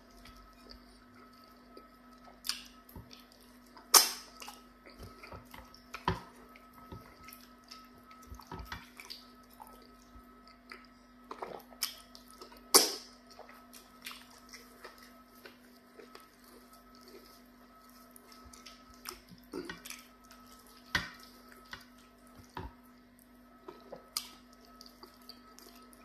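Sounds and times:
chewing: 0:00.0 - 0:26.0
sharp wet smacks: 0:03.9 - 0:04.3.

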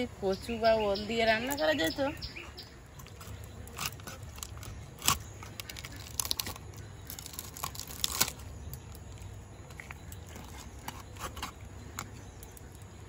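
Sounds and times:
fish crunching against blade: 0:03.0 - 0:12.6
bone cracking: 0:03.0 - 0:12.8.

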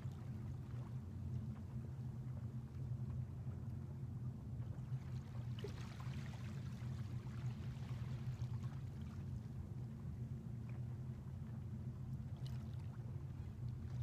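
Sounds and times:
small waves lapping on sand: 0:04.9 - 0:09.4.

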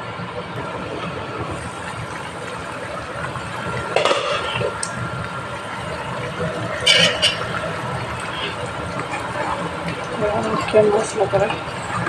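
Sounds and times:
gravy bubbling: 0:00.2 - 0:12.0.

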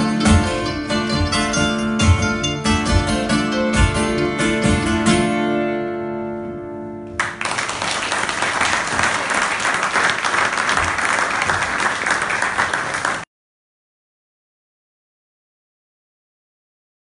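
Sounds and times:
audience applauding: 0:07.2 - 0:13.3.

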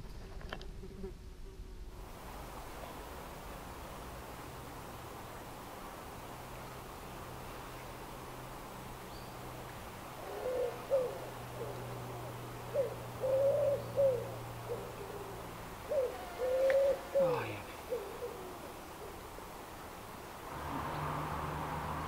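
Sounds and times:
pigeon cooing: 0:10.2 - 0:19.4.

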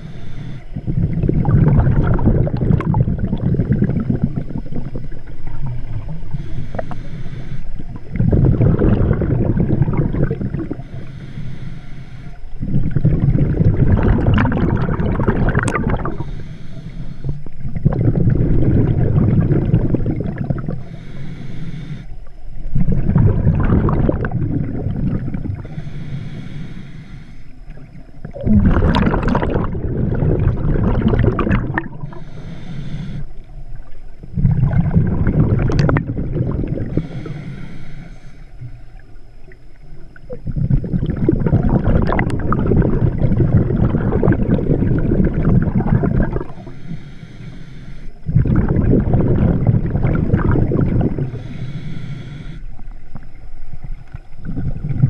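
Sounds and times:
underwater exhaled bubbles: 0:00.0 - 0:55.0.

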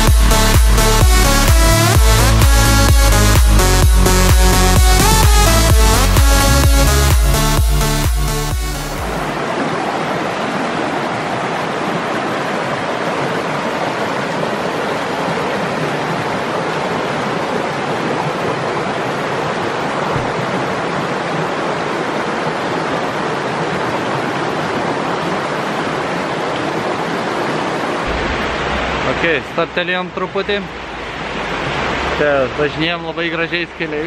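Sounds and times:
river rushing over rocks: 0:09.0 - 0:34.0.

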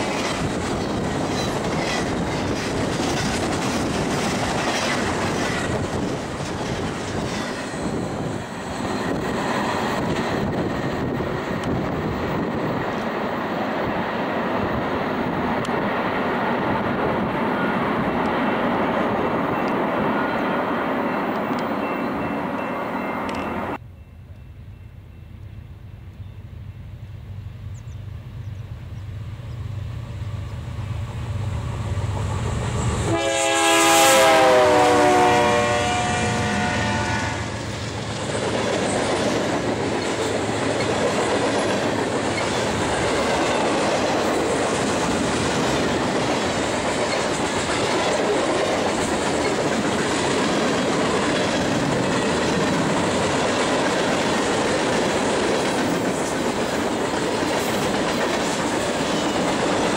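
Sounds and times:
train air horn chord: 0:33.0 - 0:37.6.

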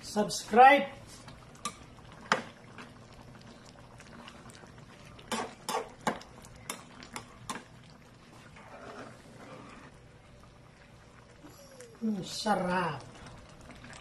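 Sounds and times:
stew simmering in a pan: 0:00.0 - 0:14.0
metal spoon scraping a pan: 0:05.3 - 0:07.6, 0:08.5 - 0:09.9.

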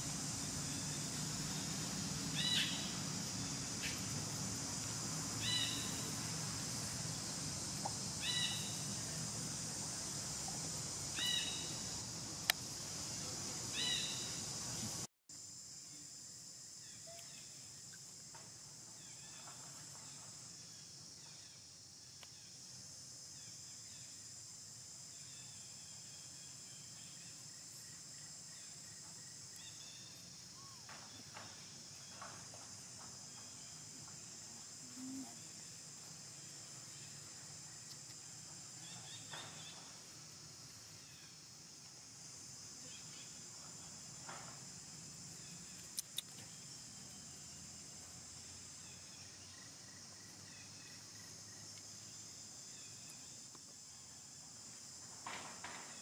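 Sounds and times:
high-pitched insect drone: 0:00.0 - 0:22.6.

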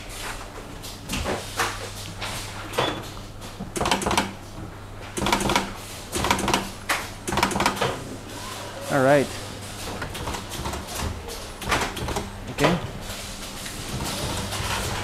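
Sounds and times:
low machine hum: 0:00.0 - 0:15.0
spot welder clicks and hum: 0:00.8 - 0:08.0, 0:09.7 - 0:12.8.

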